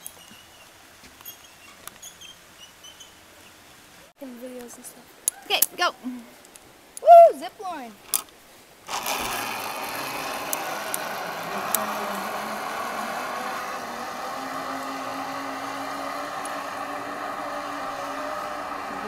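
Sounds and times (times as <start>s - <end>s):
zip-line pulleys whirring on cable: 8.9s - 19.0s.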